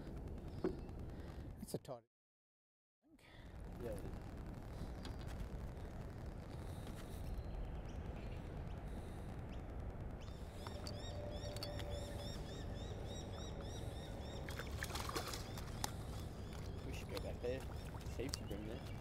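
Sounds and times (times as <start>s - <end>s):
faint steady hum: 3.1s - 19.0s
low rumble around boat: 3.3s - 19.0s
fish splashing: 13.4s - 19.0s.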